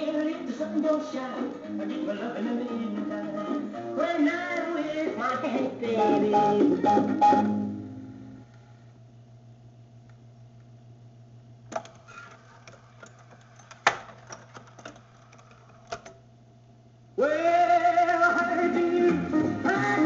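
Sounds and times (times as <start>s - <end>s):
music from record: 0.0s - 8.4s, 17.2s - 20.0s
low steady hum: 0.0s - 18.2s
jukebox mechanism clicks: 11.7s - 16.2s.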